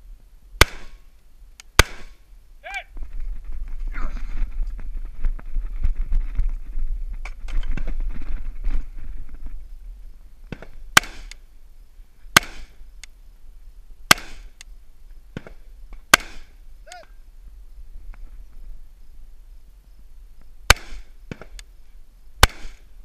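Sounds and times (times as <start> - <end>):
rifle shots: 0.6 - 1.0, 1.8 - 2.2, 10.6 - 11.4, 12.4 - 12.8, 14.1 - 14.6, 16.1 - 16.5, 20.7 - 21.1, 22.4 - 22.9
rustling and scuffing: 2.9 - 10.8.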